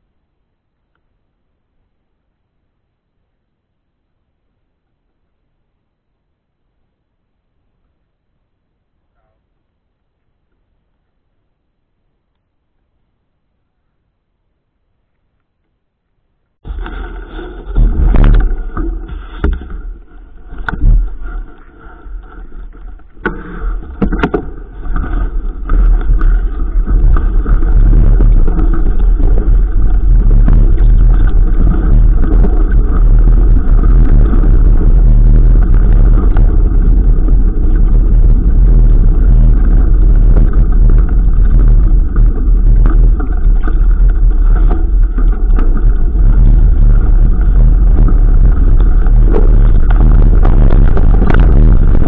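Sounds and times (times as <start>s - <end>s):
wind and bike ride rumble: 6.9s - 52.0s.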